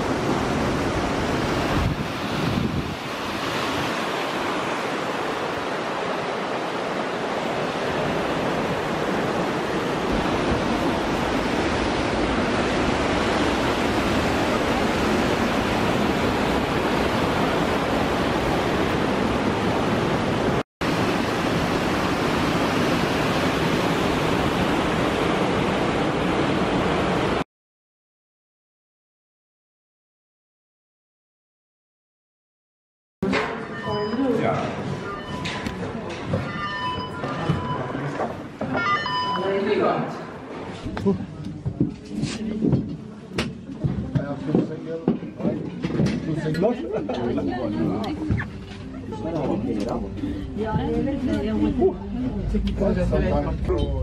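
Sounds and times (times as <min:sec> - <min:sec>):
river rushing over rocks: 0:00.0 - 0:27.4.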